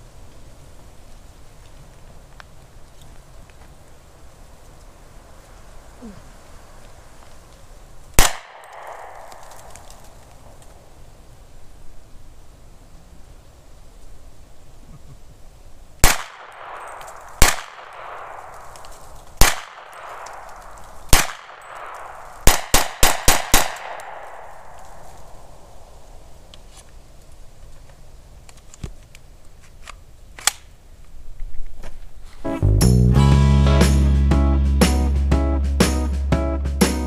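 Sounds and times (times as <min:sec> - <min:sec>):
carbine gunshots: 0:08.2 - 0:10.3, 0:16.0 - 0:25.4
gunshot echo off woods: 0:08.2 - 0:10.6, 0:16.0 - 0:25.9.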